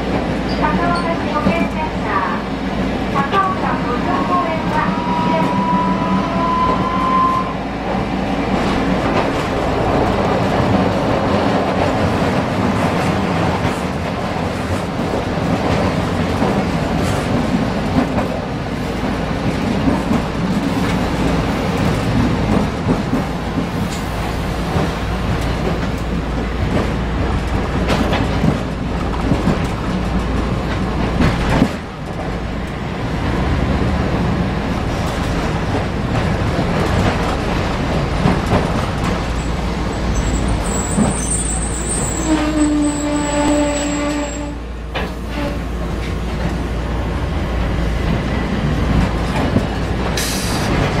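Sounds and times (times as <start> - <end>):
tram wheels rumbling: 0.0 - 51.0
sharp clacks over rails: 19.0 - 33.4, 34.8 - 39.4.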